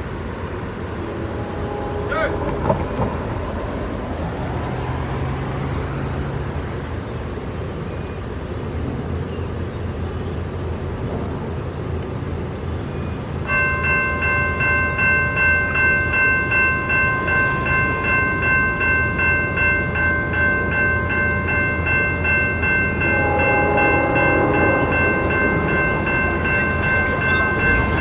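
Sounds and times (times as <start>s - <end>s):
railroad crossing bells ringing: 0.0s - 6.1s, 13.3s - 28.0s
low train horn: 1.1s - 3.3s, 23.0s - 28.0s.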